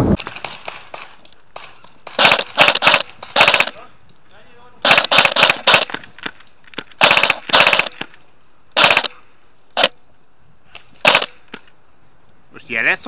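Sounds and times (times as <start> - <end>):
airsoft gun automatic bursts: 2.0 - 3.8, 4.8 - 6.0, 7.0 - 8.2, 8.8 - 9.2, 9.8 - 10.0, 11.0 - 11.4
single airsoft shot: 8.8 - 9.2, 11.0 - 11.4.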